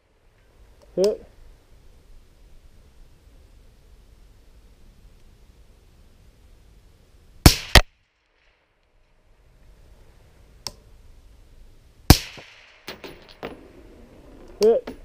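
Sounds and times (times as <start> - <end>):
suppressed rifle shots: 7.4 - 8.7, 12.1 - 14.2
sharp crack: 7.4 - 9.4, 12.1 - 15.0.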